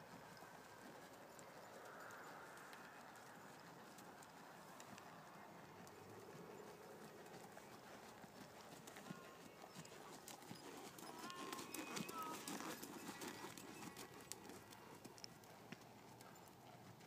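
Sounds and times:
hoofbeats on sand: 4.8s - 17.0s.

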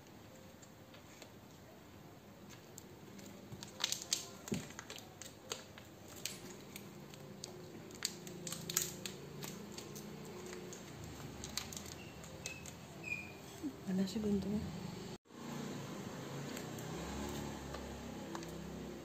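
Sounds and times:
plastic bags crinkling: 2.5s - 13.0s.

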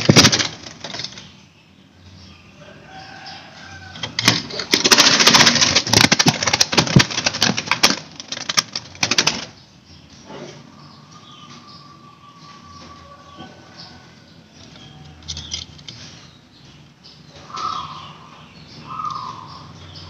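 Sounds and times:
bird flapping in wire cage: 0.0s - 1.3s, 3.8s - 9.6s.

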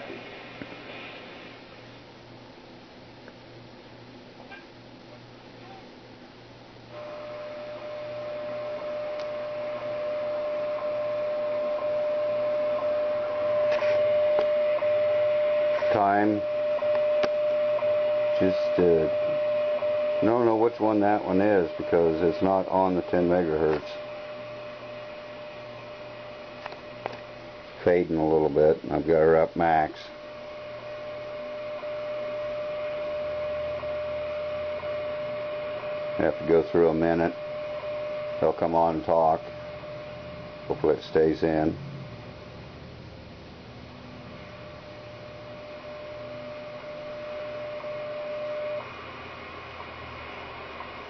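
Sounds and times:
steady radio tone: 6.9s - 42.7s, 44.2s - 51.0s
steady whistle tone: 7.0s - 23.4s
radio static: 7.0s - 42.8s, 43.4s - 51.0s.

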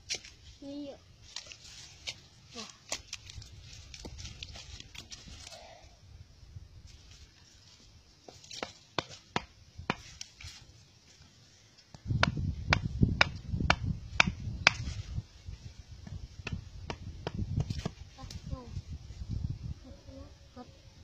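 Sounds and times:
machete chopping wooden stick: 0.0s - 0.4s, 8.3s - 10.3s, 12.2s - 15.0s, 16.4s - 18.0s.

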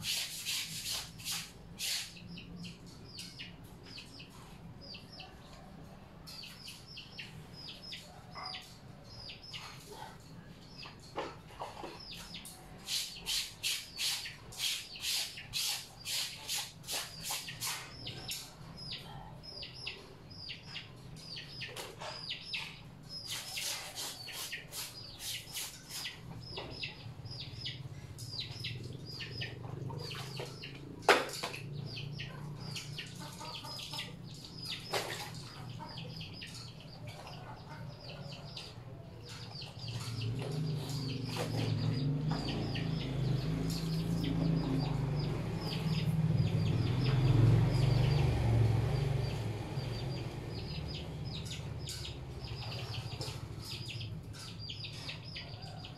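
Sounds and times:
laundry scrubbed by hand in water: 0.0s - 2.2s
small bird chirping: 0.0s - 5.4s, 6.2s - 55.9s.

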